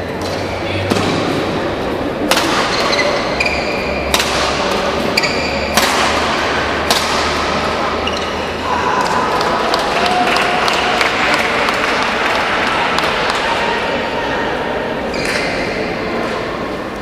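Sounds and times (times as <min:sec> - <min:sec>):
racket hitting shuttlecock: 0:00.2 - 0:01.6, 0:02.2 - 0:09.9, 0:10.7 - 0:13.6
shoe squeaks: 0:02.7 - 0:04.1, 0:05.1 - 0:05.8, 0:08.0 - 0:08.6.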